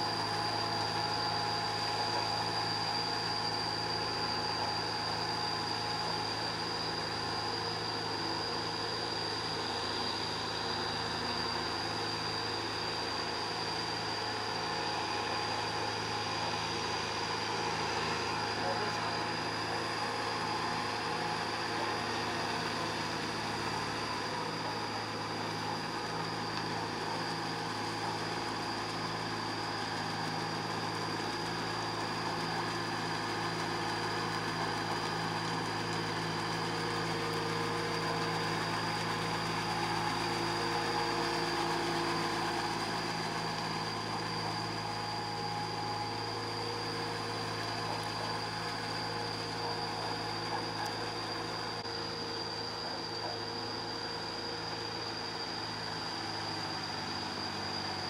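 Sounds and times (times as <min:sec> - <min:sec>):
tractor diesel engine running: 0:14.2 - 0:53.7.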